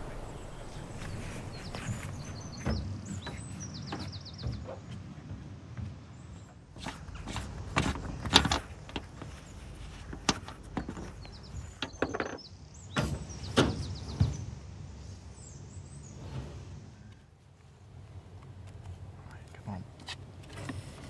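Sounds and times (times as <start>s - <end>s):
small birds chirping: 0.0s - 5.2s, 6.1s - 16.4s.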